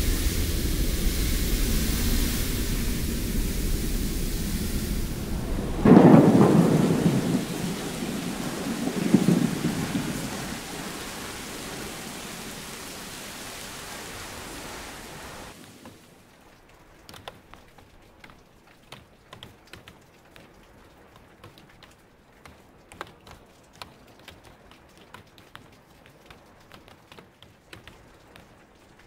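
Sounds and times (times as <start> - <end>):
thunder rumbling: 0.0 - 15.6
heavy rain: 0.0 - 29.0
faint ticks and drips: 15.5 - 29.0.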